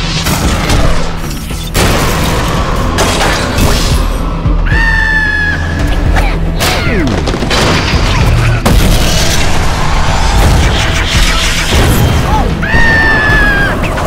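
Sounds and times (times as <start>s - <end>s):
loud action music: 0.0s - 14.0s
booms and crashes: 6.9s - 14.0s.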